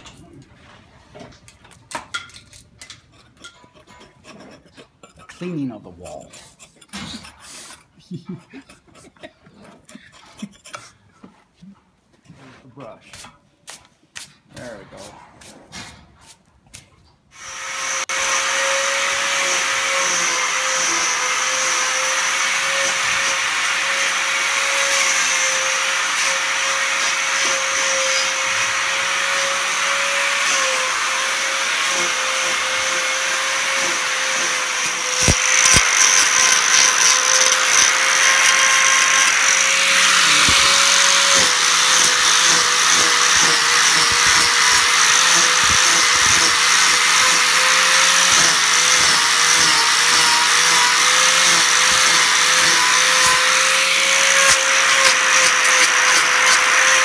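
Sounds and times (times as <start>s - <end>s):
angle grinder grinding hoof: 17.4s - 57.0s.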